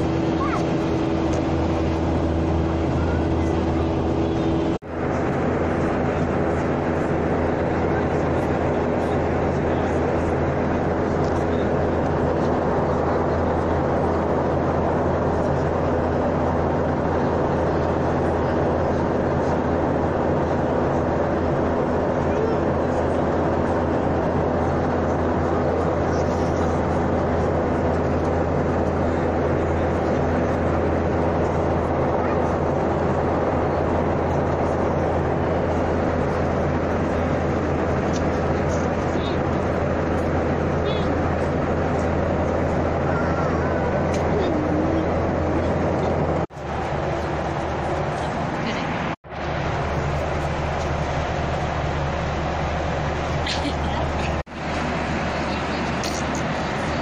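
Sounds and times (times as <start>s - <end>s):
airflow and engines rushing: 0.0s - 57.0s.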